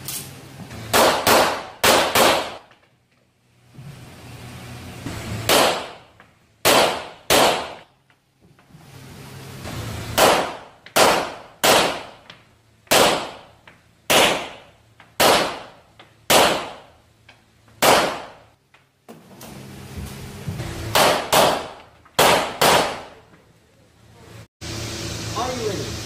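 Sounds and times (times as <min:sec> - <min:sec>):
pistol shots echoing indoors: 0:00.9 - 0:02.7, 0:05.5 - 0:07.8, 0:10.1 - 0:12.2, 0:12.8 - 0:13.5, 0:14.1 - 0:17.0, 0:17.8 - 0:18.5, 0:20.9 - 0:23.2.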